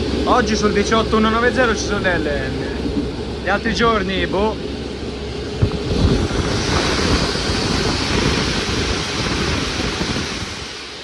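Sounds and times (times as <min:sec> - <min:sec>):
railcar low rumble: 0:00.0 - 0:11.0
rushing wind: 0:00.0 - 0:11.0
hiss: 0:05.9 - 0:11.0.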